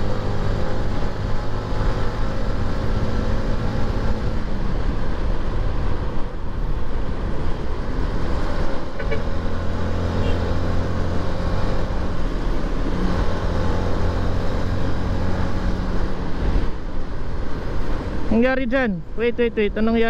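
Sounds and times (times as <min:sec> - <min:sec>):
wind rush: 0:00.0 - 0:09.8.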